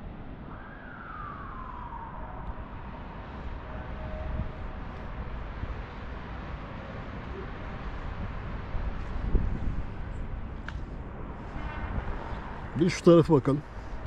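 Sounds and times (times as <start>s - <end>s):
faint steady tone: 0.0s - 11.4s
wind rumble on microphone: 0.0s - 14.0s
distant wailing tone: 0.4s - 8.9s.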